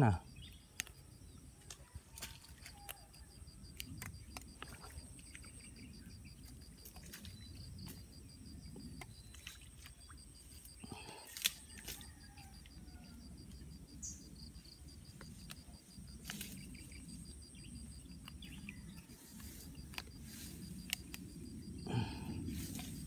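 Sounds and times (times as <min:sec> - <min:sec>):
insect chirping: 0:00.0 - 0:23.0.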